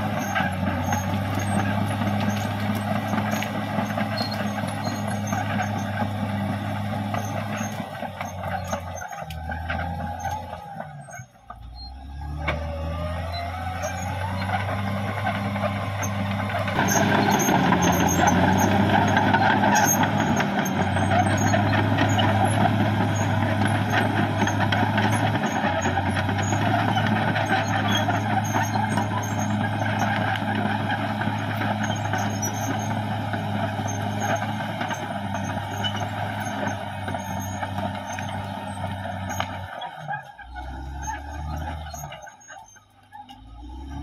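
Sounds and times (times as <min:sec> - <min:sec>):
bulldozer diesel engine under load: 0:00.0 - 0:44.0.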